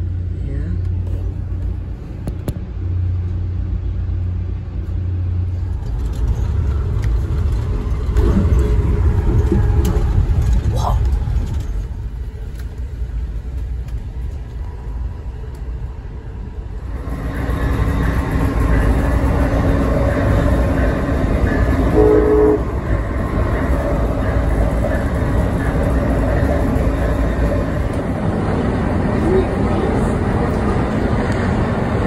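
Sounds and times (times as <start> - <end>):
train rumbling on board: 0.0 - 32.0
train horn note: 21.9 - 22.8.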